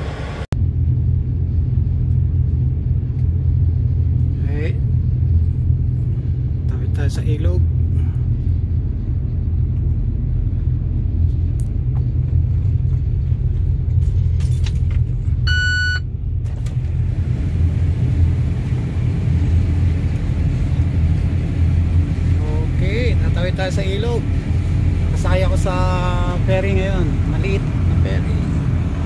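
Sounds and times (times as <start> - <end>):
truck engine rumble: 0.0 - 29.0
short electronic beep: 15.4 - 16.1.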